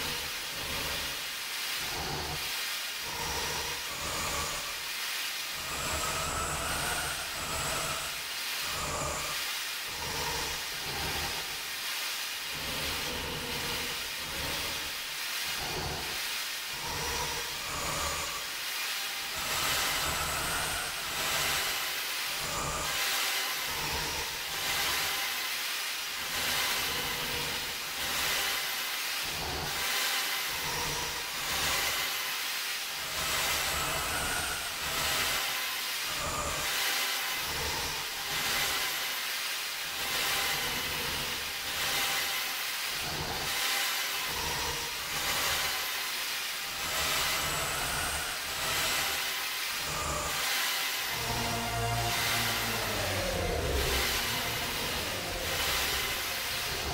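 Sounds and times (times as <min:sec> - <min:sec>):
slowed ambient music drone: 0:01.8 - 0:04.9, 0:05.5 - 0:11.8, 0:12.4 - 0:25.4, 0:26.1 - 0:32.0, 0:46.6 - 0:56.9.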